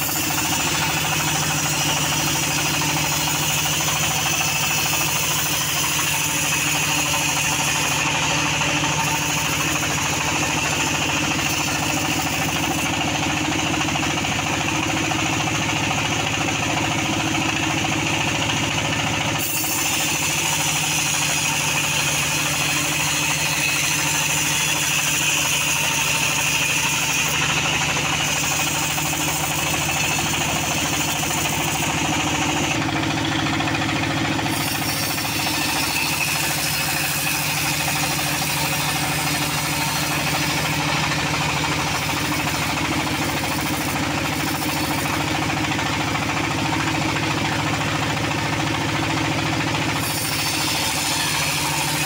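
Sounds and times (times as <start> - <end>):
band sawmill humming: 0.0 - 52.0.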